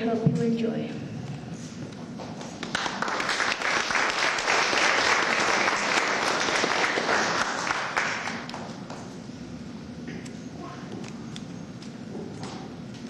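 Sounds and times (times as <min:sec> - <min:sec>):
audience applauding: 0:02.4 - 0:09.0.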